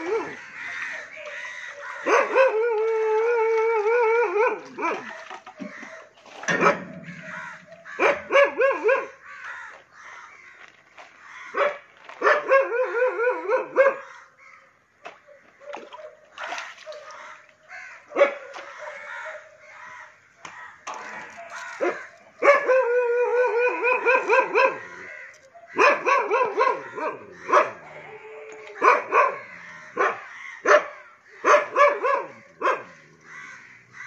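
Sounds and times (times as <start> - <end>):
dog yelping barks: 0.0 - 3.4, 6.5 - 9.2, 11.5 - 14.1, 18.1 - 19.6, 21.1 - 32.9.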